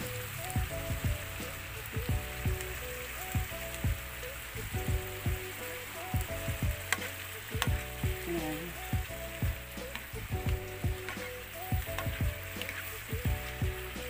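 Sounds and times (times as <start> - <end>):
background music with steady beat: 0.0 - 14.0
vegetables sizzling in a frying pan: 0.0 - 14.0
spatula clicking against pan: 6.9 - 7.8, 9.9 - 12.8.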